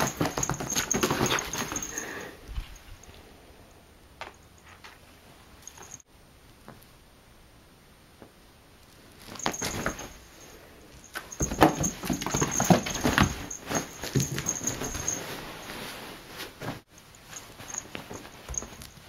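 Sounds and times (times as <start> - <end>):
cat scrambling thumps and scuffs: 0.0 - 2.0, 9.3 - 10.2, 11.2 - 15.4
bedding rustling: 0.0 - 3.2, 9.1 - 19.0.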